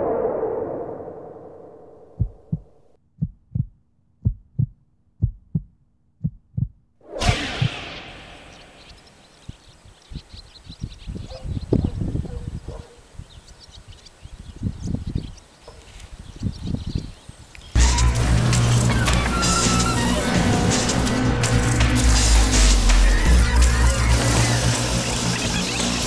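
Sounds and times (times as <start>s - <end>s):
loud rush of noise: 0.0s - 2.0s, 17.8s - 26.0s
heartbeat thumps: 2.1s - 6.8s
low dull thuds: 2.1s - 6.8s
small birds chirping: 7.7s - 17.8s.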